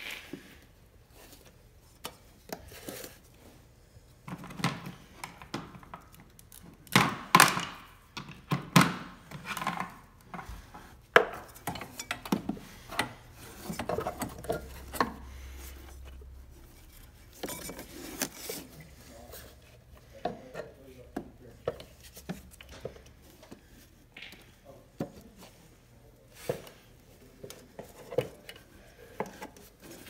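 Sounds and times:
hands working drive belt over pulleys: 7.4 - 24.0.

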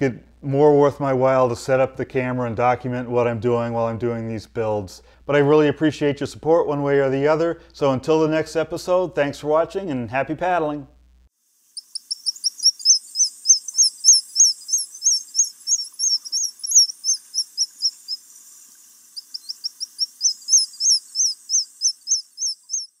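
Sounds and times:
bird chirping: 11.8 - 23.0.

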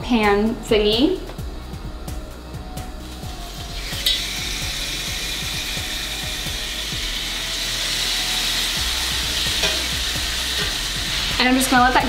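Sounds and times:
chicken sizzling on a grill pan: 3.6 - 11.7.

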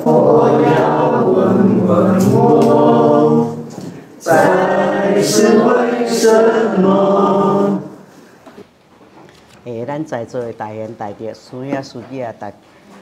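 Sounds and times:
voices singing unaccompanied: 0.0 - 8.1.

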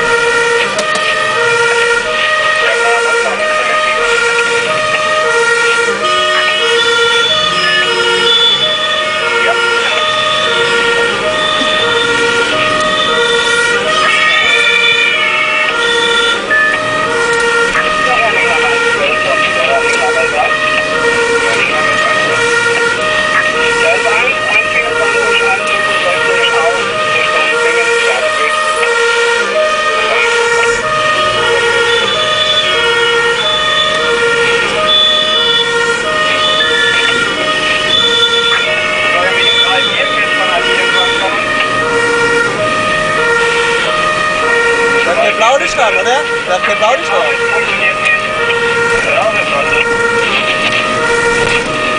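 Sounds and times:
two-tone fire engine sirens: 0.0 - 51.9.

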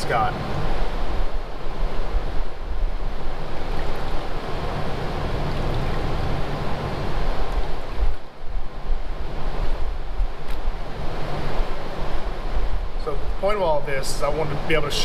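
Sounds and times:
water churning in speaker cone: 10.8 - 15.0.

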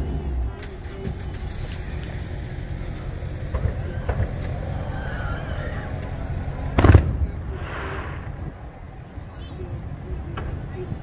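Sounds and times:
low rumble: 0.0 - 11.0
firework bang: 3.4 - 4.8, 5.9 - 9.3.

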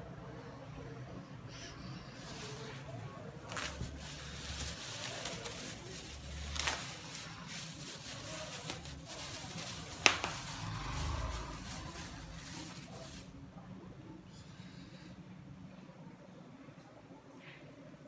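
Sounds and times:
plastic bag rustling and crinkling: 2.2 - 13.4.

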